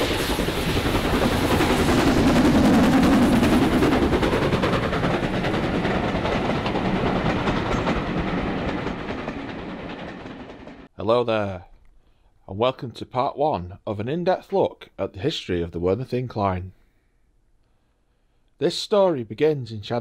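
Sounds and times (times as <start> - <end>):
train running at speed: 0.0 - 10.9.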